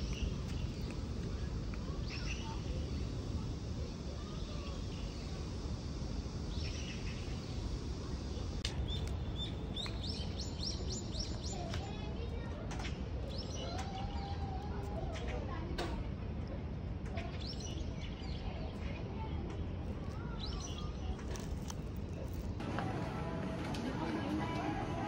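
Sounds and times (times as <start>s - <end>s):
low outdoor rumble: 0.0s - 25.0s.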